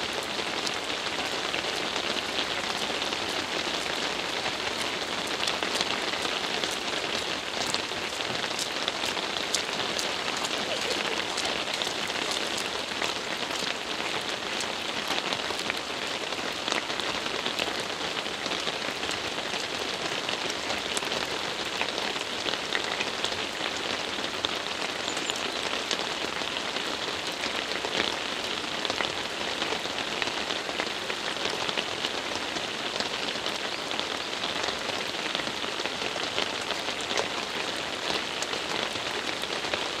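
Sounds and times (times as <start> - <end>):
rain on paved road: 0.0 - 40.0
raindrops ticking: 0.1 - 28.2.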